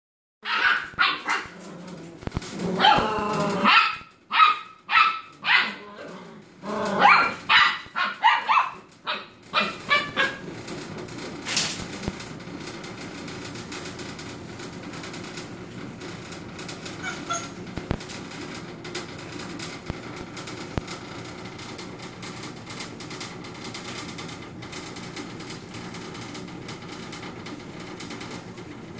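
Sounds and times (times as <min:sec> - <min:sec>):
puppies yapping and barking: 0:00.4 - 0:05.9, 0:06.8 - 0:10.6, 0:17.0 - 0:17.6.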